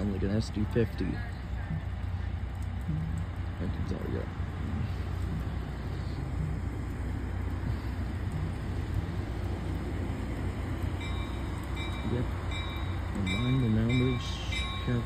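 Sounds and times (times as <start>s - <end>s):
diesel locomotive engine rumbling: 0.0s - 15.0s
locomotive bell ringing: 10.8s - 15.0s.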